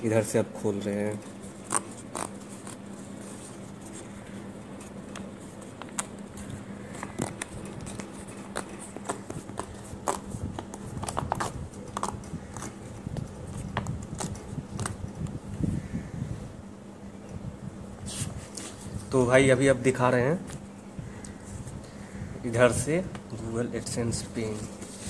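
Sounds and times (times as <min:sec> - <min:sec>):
paper crinkling and tearing: 0:01.0 - 0:04.1, 0:04.8 - 0:12.8.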